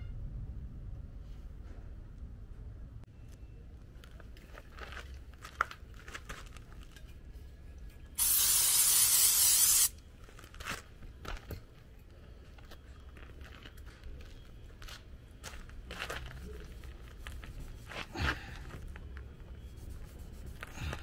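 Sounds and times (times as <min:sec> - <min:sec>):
aerosol spray hissing: 0:08.2 - 0:09.9.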